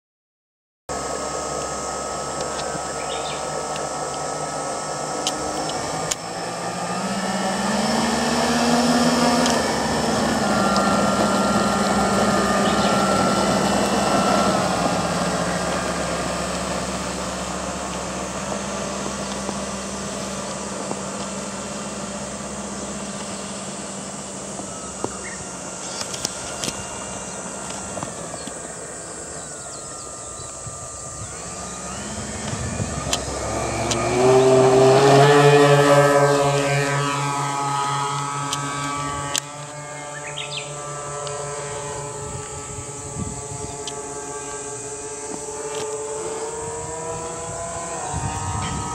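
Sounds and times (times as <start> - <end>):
model plane motors humming: 0.9 - 48.9.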